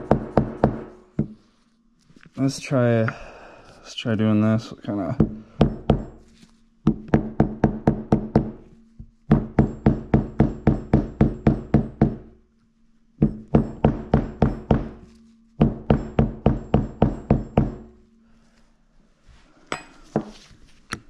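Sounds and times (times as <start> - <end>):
hammer blows ringing on metal: 0.0 - 1.2, 6.9 - 12.3, 13.2 - 18.0.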